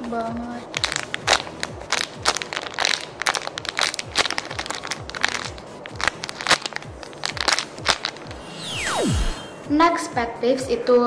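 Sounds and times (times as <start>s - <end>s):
plastic packaging crinkling: 0.7s - 8.4s.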